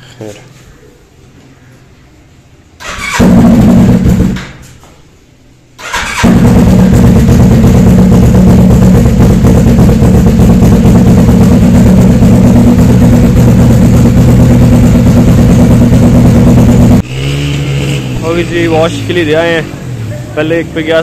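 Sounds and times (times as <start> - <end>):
motorcycle engine idling loudly: 6.2 - 17.0.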